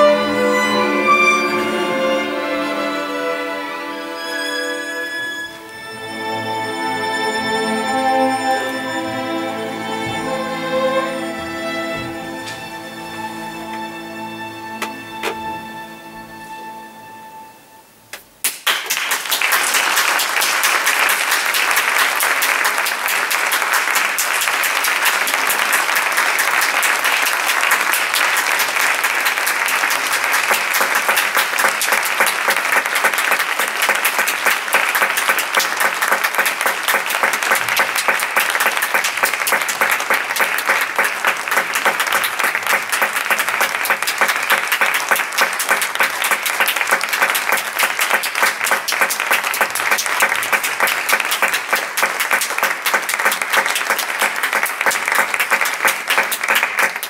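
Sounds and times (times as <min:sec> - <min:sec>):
audience applauding: 0:18.4 - 0:57.0.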